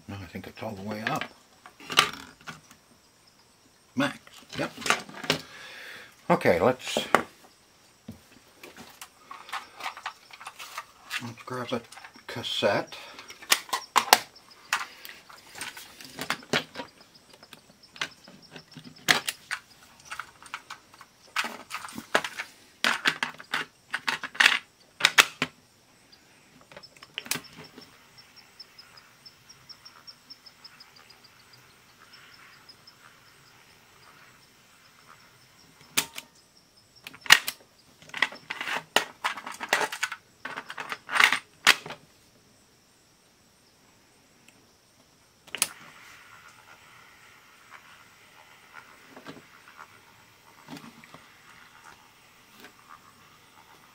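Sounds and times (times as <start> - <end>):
hard plastic clicking and clattering: 13.2 - 25.6, 37.0 - 42.0.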